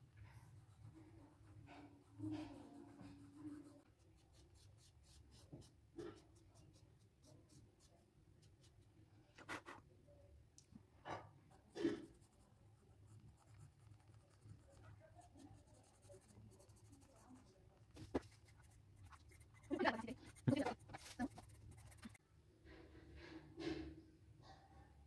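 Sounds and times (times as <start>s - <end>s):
pencil scratching on paper: 0.2s - 8.8s, 11.5s - 22.2s.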